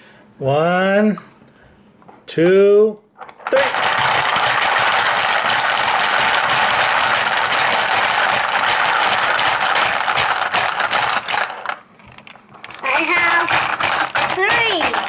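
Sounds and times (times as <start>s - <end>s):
marbles rattling: 3.2s - 15.0s
plastic heads clacking on board: 3.2s - 15.0s
plastic levers pounding: 3.5s - 15.0s.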